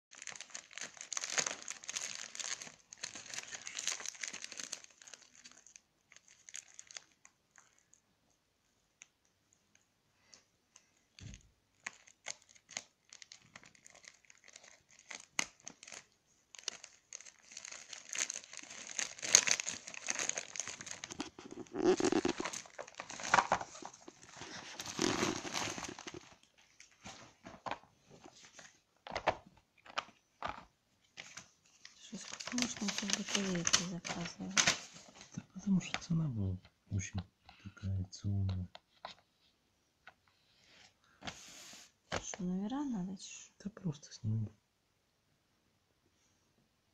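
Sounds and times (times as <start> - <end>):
plastic bag crinkling and tearing: 0.1 - 8.0, 11.2 - 27.8, 31.2 - 35.4.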